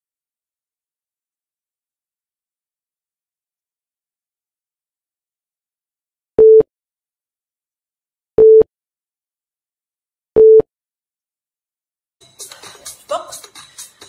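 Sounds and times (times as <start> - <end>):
countdown timer beeps: 8.4 - 8.6, 10.4 - 10.6.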